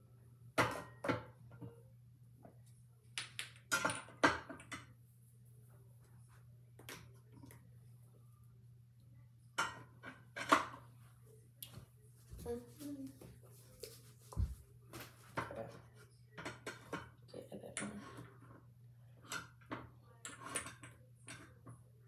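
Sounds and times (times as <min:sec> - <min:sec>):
bottles and jars clattering on counter: 0:00.6 - 0:01.6, 0:03.3 - 0:04.9.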